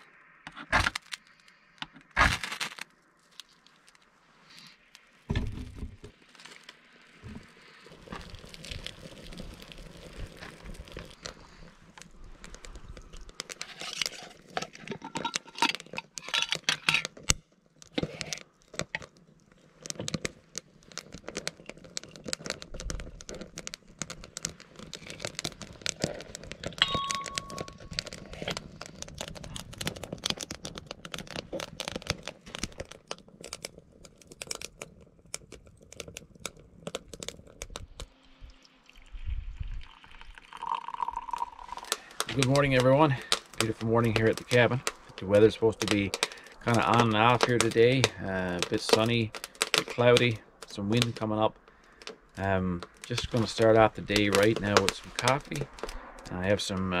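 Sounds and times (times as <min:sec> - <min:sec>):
glass jar lid unscrewed: 0:13.6 - 0:17.1
ringing clink: 0:26.8 - 0:27.7.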